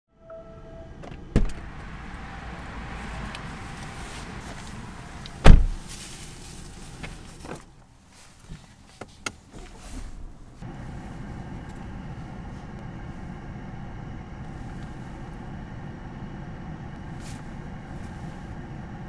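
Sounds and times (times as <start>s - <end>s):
steady low rumble: 10.1s - 19.0s.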